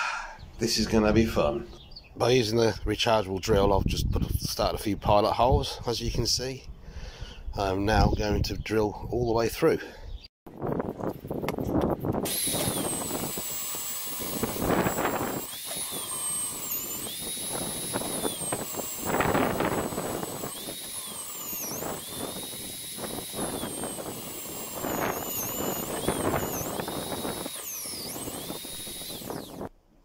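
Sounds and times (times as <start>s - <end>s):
rough metal cutting noise: 11.8s - 29.7s
drill motor whine: 12.2s - 29.7s.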